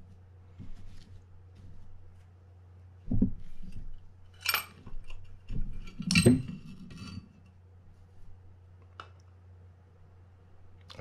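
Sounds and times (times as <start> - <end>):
metal reel parts clinking: 4.3 - 7.3.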